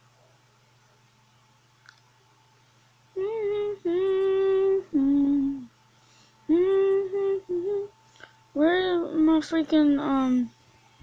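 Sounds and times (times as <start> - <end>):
boy singing wordless tune: 3.1 - 5.7, 6.5 - 10.6.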